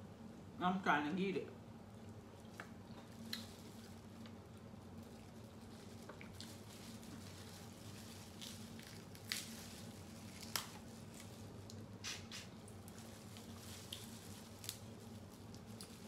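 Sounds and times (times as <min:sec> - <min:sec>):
wet squishing of meat: 0:02.1 - 0:11.9
crab shells cracking: 0:02.5 - 0:16.0.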